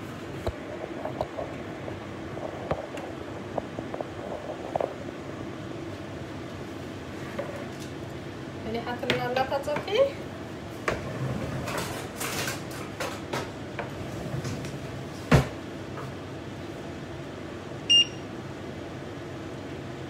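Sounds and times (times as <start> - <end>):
range hood fan hum: 0.0 - 20.0
baking tray and utensils clattering: 10.9 - 13.5
short electronic appliance beep: 17.9 - 18.3.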